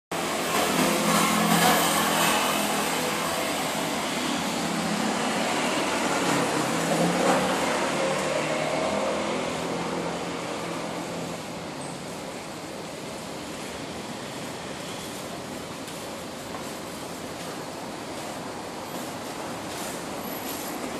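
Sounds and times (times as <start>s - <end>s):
traffic noise: 0.1s - 20.9s
motor scooters passing: 0.2s - 15.3s.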